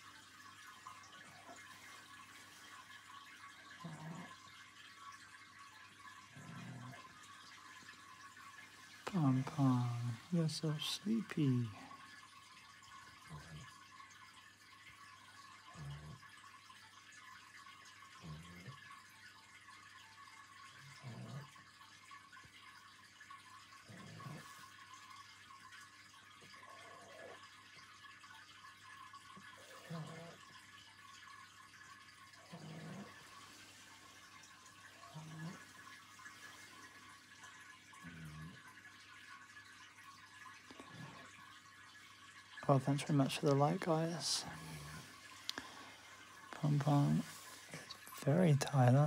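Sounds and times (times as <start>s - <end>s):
faint steady hiss: 0.0s - 49.0s
dog snoring softly: 0.5s - 5.2s, 5.9s - 11.0s, 15.1s - 16.4s, 18.1s - 19.0s, 20.5s - 22.0s, 23.3s - 25.4s, 26.4s - 28.1s, 29.4s - 31.3s, 32.3s - 38.8s, 42.8s - 45.6s
dog snoring: 3.8s - 4.4s, 6.3s - 7.1s, 20.8s - 21.6s, 23.7s - 24.8s, 29.6s - 30.5s, 32.4s - 33.6s, 35.0s - 35.7s
faint hiss: 42.6s - 49.0s.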